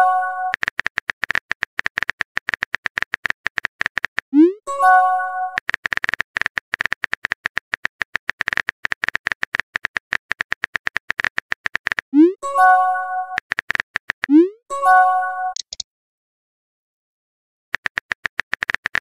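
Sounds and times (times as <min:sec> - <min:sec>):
phone keyboard typing clicks: 0:00.5 - 0:04.3, 0:05.5 - 0:12.1, 0:13.4 - 0:14.4, 0:15.5 - 0:15.8, 0:17.8 - 0:19.0.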